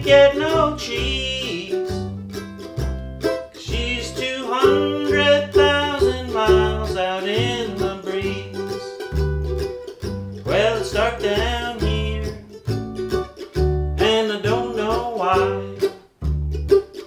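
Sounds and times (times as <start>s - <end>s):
mandolin melody: 0.0s - 17.0s
upright bass plucking: 0.0s - 17.0s.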